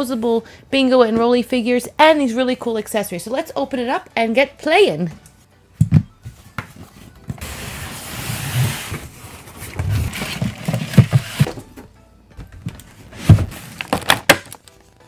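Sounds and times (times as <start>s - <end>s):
background music: 0.0s - 15.0s
packaging rustling: 9.1s - 11.5s, 12.7s - 15.0s.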